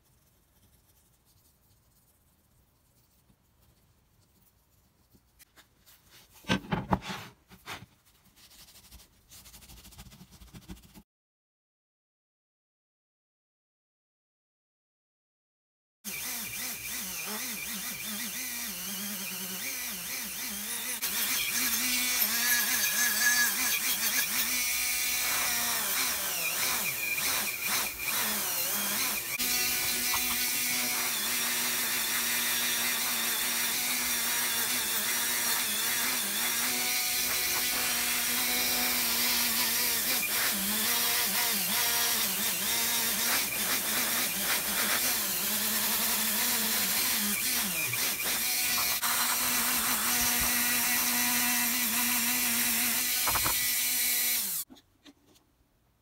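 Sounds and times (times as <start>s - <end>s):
rotary tool grinding metal: 16.1s - 54.7s.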